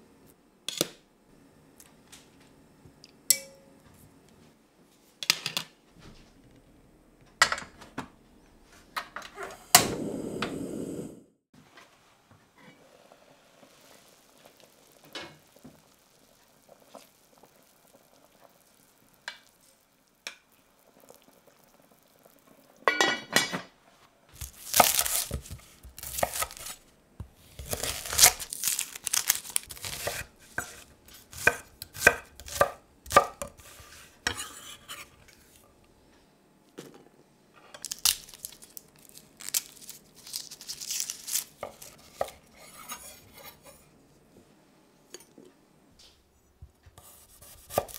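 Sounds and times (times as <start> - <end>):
papery skins crackling: 24.4 - 26.8, 27.6 - 30.1, 37.8 - 42.2.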